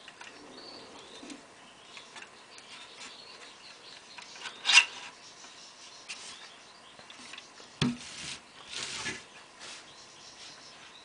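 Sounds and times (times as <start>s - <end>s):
wire bars rubbing and scraping: 4.2s - 5.2s, 7.2s - 10.6s.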